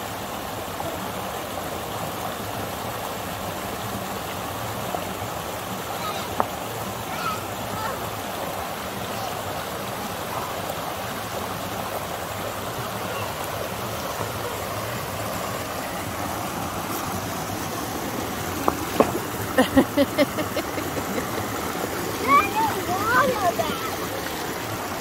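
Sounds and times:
creek rushing over rocks: 0:00.0 - 0:25.0.

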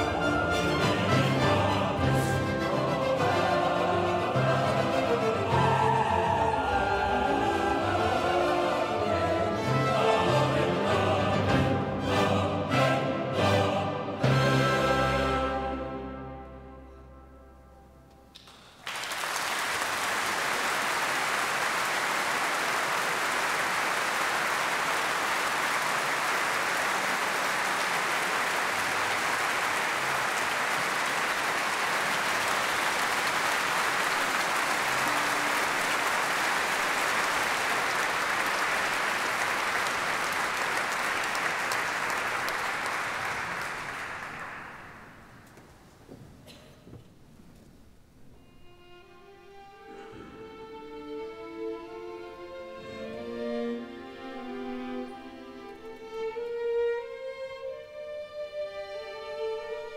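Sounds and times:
audience applauding: 0:18.4 - 0:45.6.

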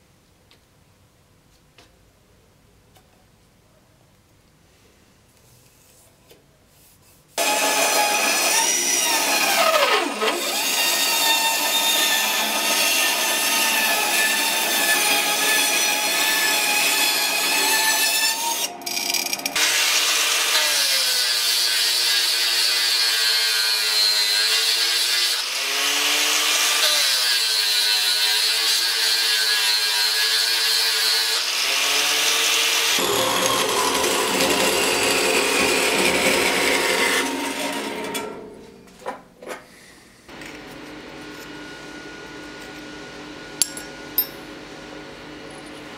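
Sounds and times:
band saw running: 0:07.4 - 0:28.5, 0:29.7 - 0:38.4, 0:40.3 - 0:45.9
angle grinder whining: 0:07.4 - 0:38.3, 0:40.3 - 0:45.9.

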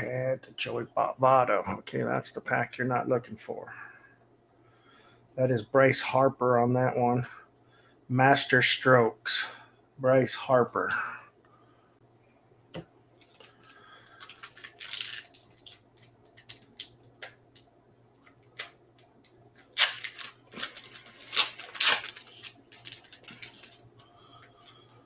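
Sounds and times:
foil wrapper tearing and crinkling: 0:13.2 - 0:17.6, 0:19.6 - 0:23.9.

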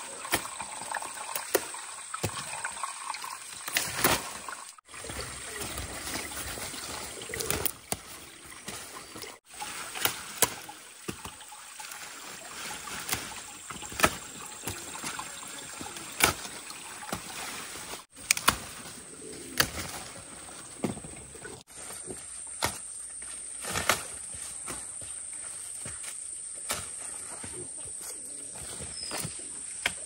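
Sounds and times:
leaves rustling: 0:03.5 - 0:30.0
stems snapping: 0:18.2 - 0:18.8, 0:19.5 - 0:20.0.

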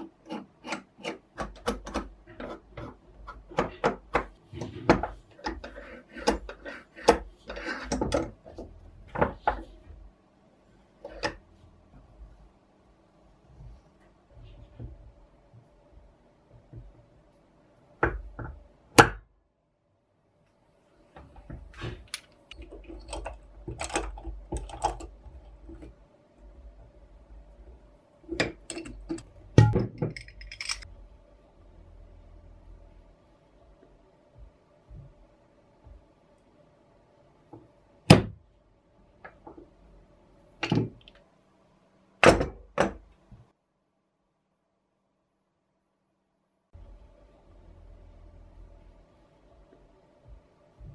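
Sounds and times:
metal tools clicking and rattling: 0:28.6 - 0:30.9.

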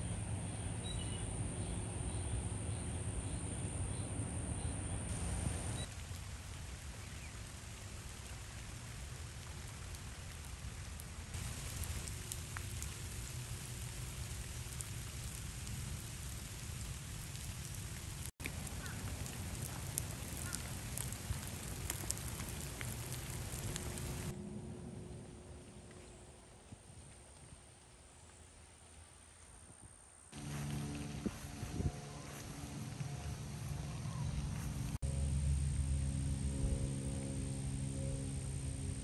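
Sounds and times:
steady rain: 0:05.1 - 0:24.4, 0:30.3 - 0:35.4.

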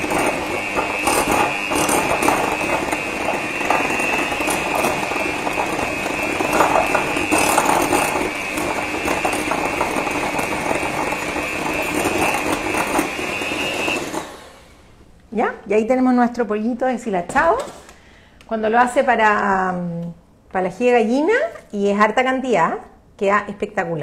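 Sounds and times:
mixer beaters rattling in bowl: 0:00.0 - 0:14.4
electric hand mixer whining: 0:00.0 - 0:14.8.

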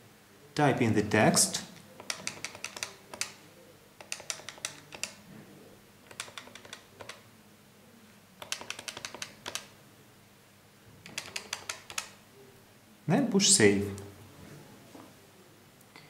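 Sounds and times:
plastic keypad buttons clicking: 0:02.0 - 0:03.4, 0:04.0 - 0:05.2, 0:06.1 - 0:07.2, 0:08.4 - 0:09.7, 0:11.0 - 0:12.2.

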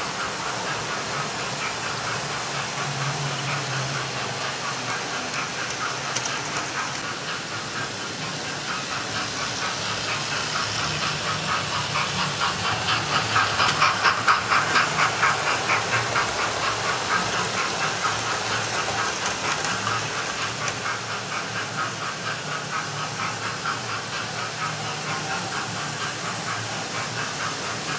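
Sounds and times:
model trains running on track: 0:00.0 - 0:27.9.

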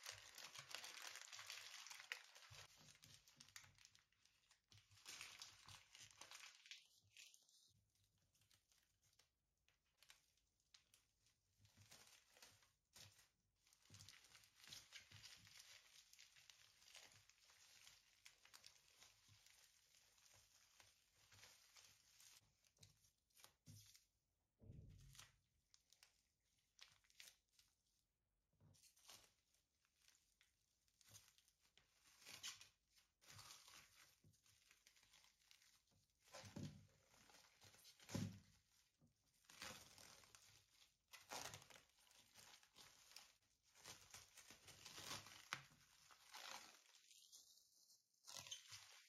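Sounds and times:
cling film crinkling: 0:00.0 - 0:07.6, 0:37.3 - 0:49.0.

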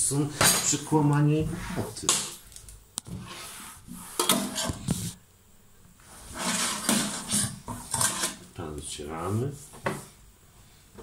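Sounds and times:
cloth scrubbing steel sink: 0:06.1 - 0:08.5.

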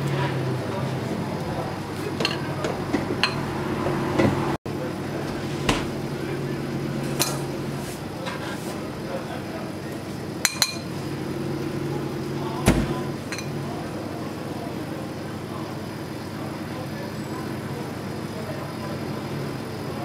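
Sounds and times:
motor humming: 0:02.6 - 0:09.6, 0:10.9 - 0:14.2.

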